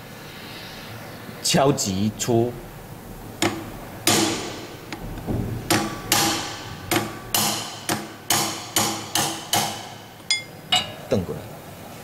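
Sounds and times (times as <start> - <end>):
hammer striking steel rod: 5.7 - 11.0.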